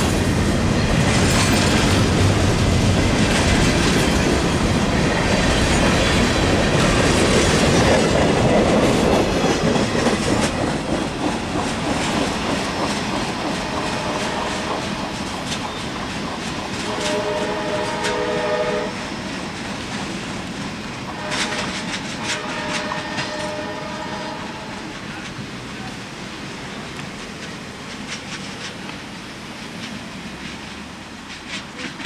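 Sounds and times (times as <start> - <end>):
train wheels clicking over rail joints: 0.0 - 32.0
train horn: 13.6 - 14.9, 16.8 - 19.1, 21.1 - 24.9.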